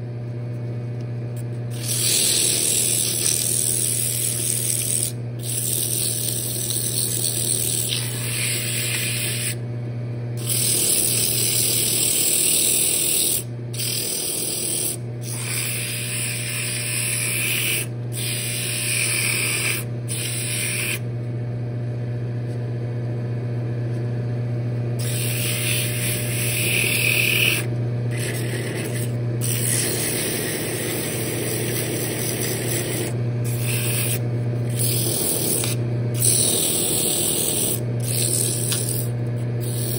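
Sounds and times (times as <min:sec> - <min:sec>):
sandpaper hissing on spinning wood: 0:01.7 - 0:09.6, 0:10.4 - 0:21.0, 0:25.0 - 0:39.9
lathe motor hum: 0:10.4 - 0:21.0, 0:25.0 - 0:39.9.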